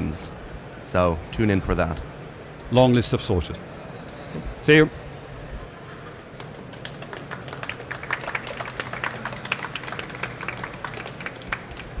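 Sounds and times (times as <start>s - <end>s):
audience applauding: 6.3s - 12.0s.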